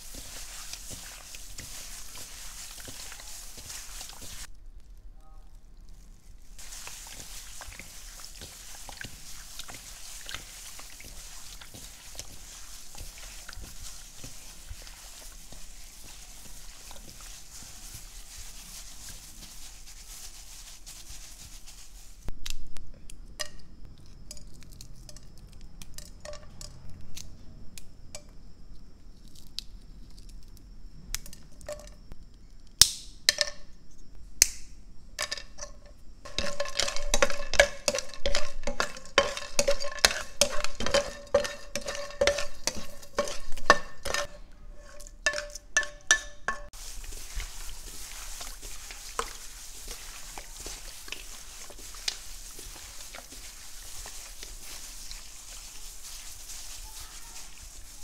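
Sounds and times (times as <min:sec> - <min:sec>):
spices rattling in metal pan: 0:00.0 - 0:04.5, 0:06.4 - 0:22.3, 0:24.2 - 0:26.8, 0:35.2 - 0:58.0.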